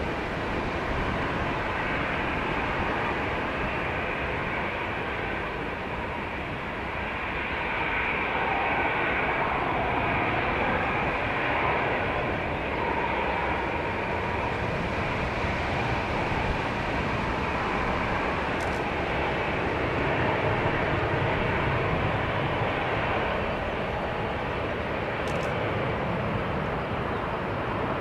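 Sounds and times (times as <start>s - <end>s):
jet engine drone with whine: 0.0s - 28.0s
wind buffeting microphone: 0.0s - 28.0s.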